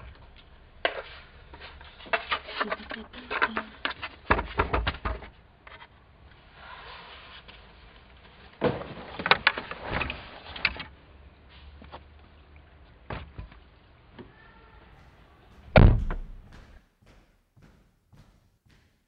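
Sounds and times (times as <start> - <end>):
car boot lid slamming: 15.7 - 16.5.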